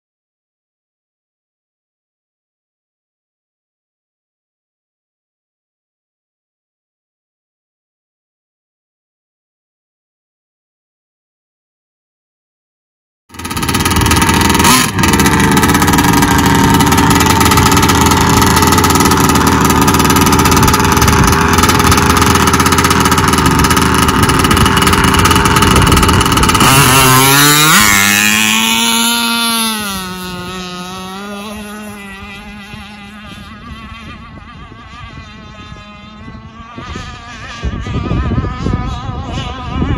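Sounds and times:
model boat engine revving: 13.3s - 39.9s.

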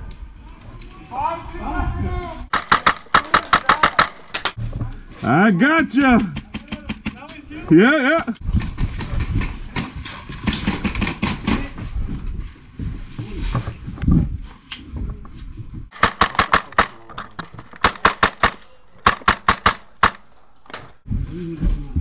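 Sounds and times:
airsoft rifle firing bursts: 2.5s - 4.6s, 15.9s - 21.0s
scuffing and rumble of movement: 11.8s - 15.9s.

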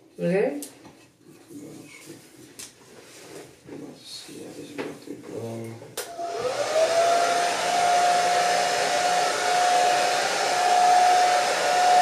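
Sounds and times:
hair dryer running: 6.0s - 12.0s.

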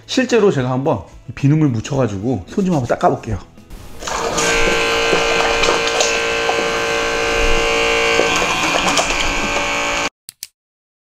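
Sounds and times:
water pouring into basin: 3.7s - 9.6s
small pump motor whirring: 3.7s - 10.1s.

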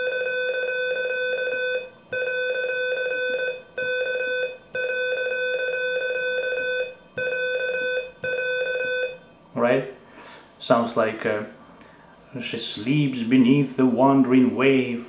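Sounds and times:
fast morse code beeps: 0.0s - 9.2s.

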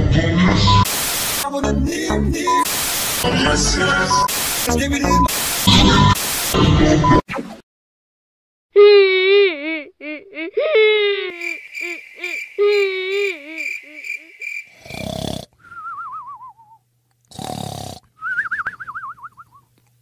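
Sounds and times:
cartoon cat wailing cry: 11.3s - 14.4s
cartoon snoring with whistle: 14.7s - 18.8s.

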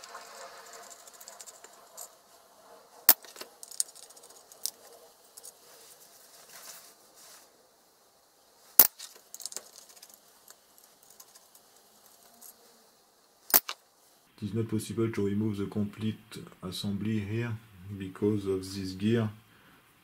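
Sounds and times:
metal parts clicking handling: 0.0s - 2.2s, 3.1s - 5.6s, 8.8s - 12.6s, 13.5s - 13.8s.

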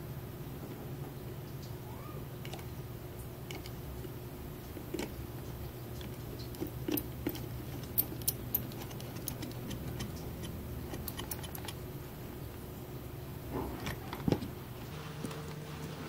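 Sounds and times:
steady low hum: 0.0s - 16.0s
plastic parts handling clicks: 6.0s - 11.8s
screwdriver clicking against screw: 6.0s - 11.8s.

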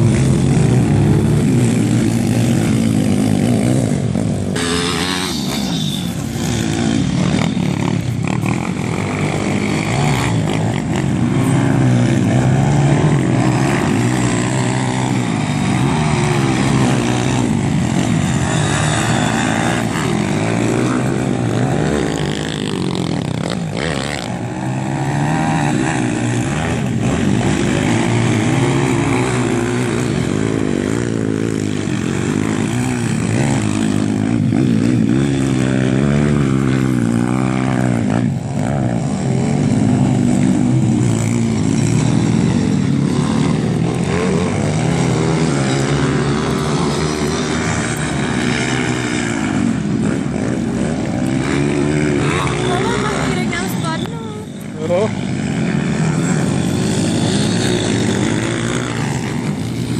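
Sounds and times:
pit bike engines revving: 0.0s - 59.9s.

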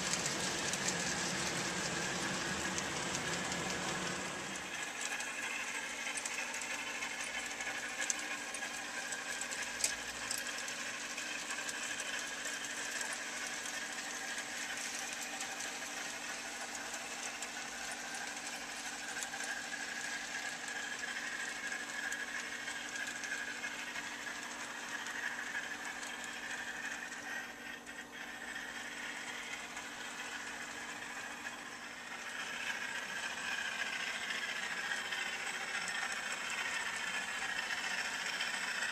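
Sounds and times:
wheels rattling on track: 0.0s - 27.0s
model train motors whirring: 0.0s - 38.9s.

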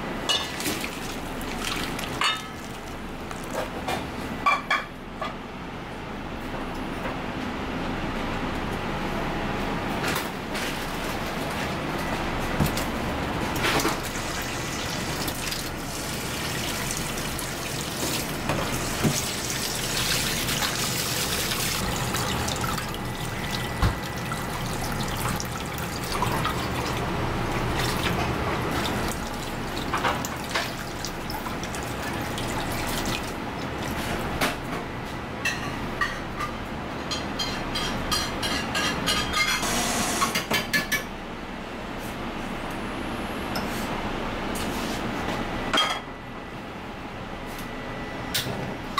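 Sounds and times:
tap water running into sink: 13.9s - 27.0s.

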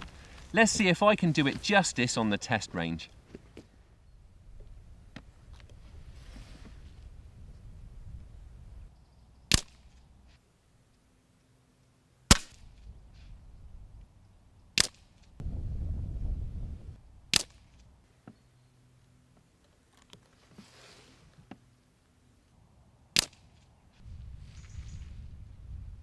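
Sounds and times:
air rifle shots: 9.5s - 9.8s, 12.3s - 12.8s, 17.3s - 17.8s.

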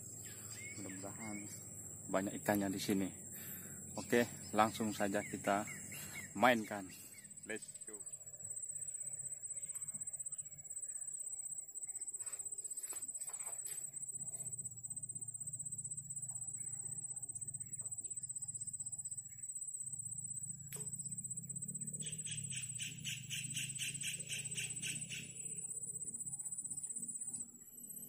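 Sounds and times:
insects trilling: 0.0s - 28.0s
sharp click: 20.7s - 21.0s.

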